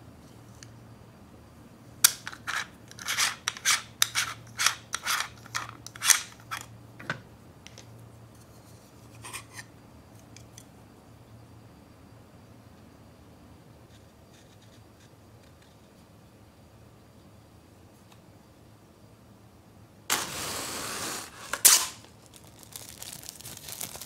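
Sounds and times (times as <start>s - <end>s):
plastic parts scratching: 2.2s - 6.7s, 21.4s - 24.0s.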